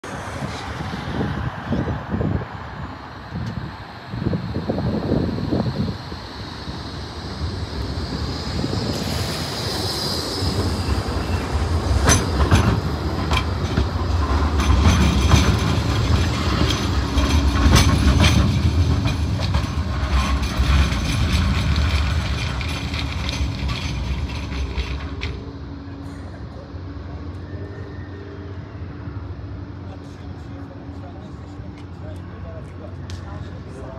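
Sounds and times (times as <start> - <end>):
tram wheels clicking over rails: 5.2 - 27.4
high wheel squeal: 27.2 - 29.6.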